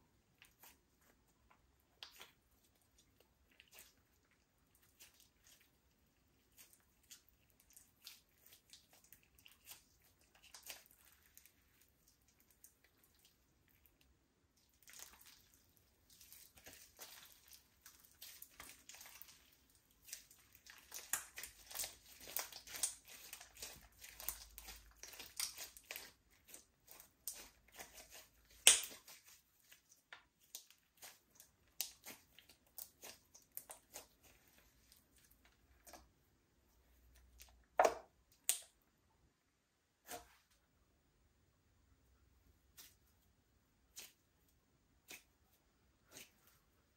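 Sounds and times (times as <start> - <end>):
slime squishing crackles: 0.1 - 36.2.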